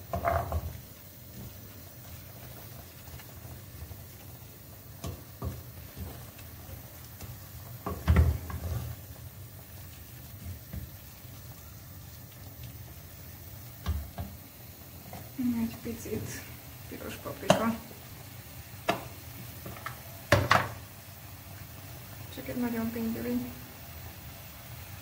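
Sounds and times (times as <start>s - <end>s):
wooden spoon knocking pan: 0.0s - 0.8s, 5.0s - 6.2s, 7.8s - 8.7s, 17.4s - 17.8s, 18.8s - 20.8s
vegetables sizzling in a pan: 0.0s - 25.0s.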